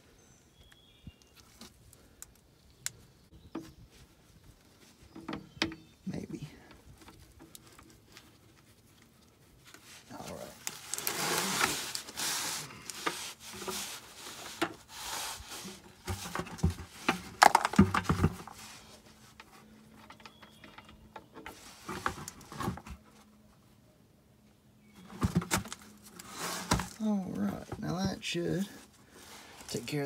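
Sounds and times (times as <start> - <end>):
plastic buckets knocking and scraping: 4.8 - 8.5, 10.1 - 23.0, 25.0 - 28.7.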